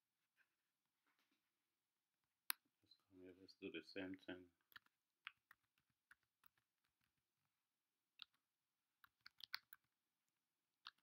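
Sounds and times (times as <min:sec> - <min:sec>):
faint keyboard typing: 0:10.8 - 0:11.0.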